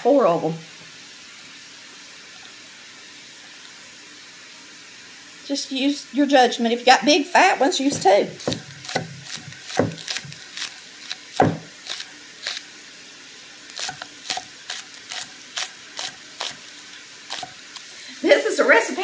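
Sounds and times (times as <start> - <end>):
knife chopping on wooden board: 7.9 - 12.6, 13.8 - 16.6.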